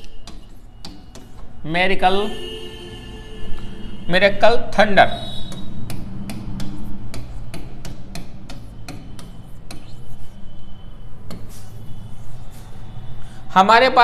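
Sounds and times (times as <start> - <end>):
chalk tapping and scraping on board: 0.0 - 1.6, 5.1 - 12.9.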